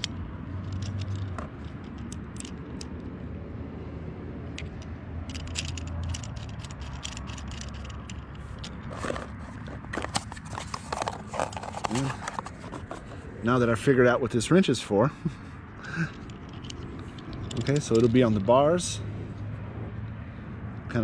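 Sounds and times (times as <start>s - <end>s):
plastic clicks and rattles: 0.0s - 3.1s, 4.5s - 13.2s, 16.1s - 18.4s
steady low rumble: 0.0s - 21.0s.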